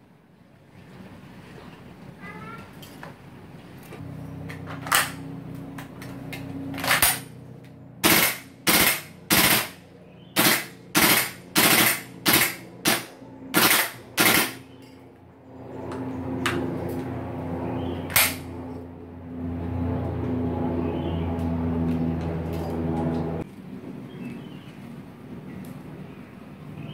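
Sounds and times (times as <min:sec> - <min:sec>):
airsoft rifle shots: 0:08.0 - 0:09.8, 0:10.4 - 0:14.7, 0:18.1 - 0:18.5.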